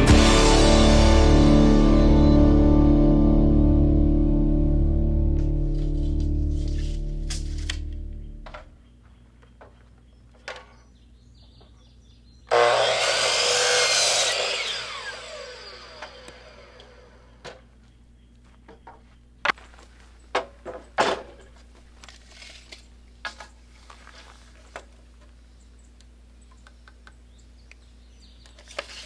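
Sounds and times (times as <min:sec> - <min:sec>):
saw blade spinning down: 0:12.5 - 0:17.3
miter saw cutting wood: 0:12.5 - 0:17.4.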